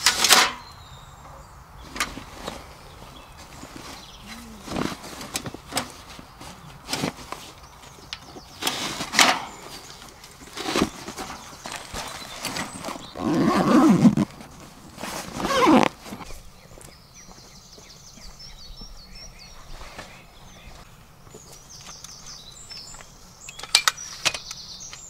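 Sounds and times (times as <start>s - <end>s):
bag closing rasp: 10.5s - 16.2s
cloth rustling: 10.6s - 16.2s.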